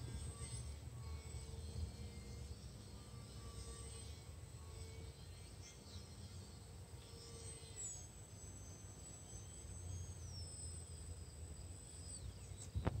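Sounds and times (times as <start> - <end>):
high whine of model plane motor: 0.0 - 13.0.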